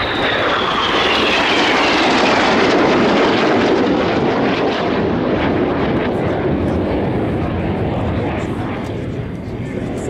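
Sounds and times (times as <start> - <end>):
jet passing with falling whine: 0.0 - 10.0.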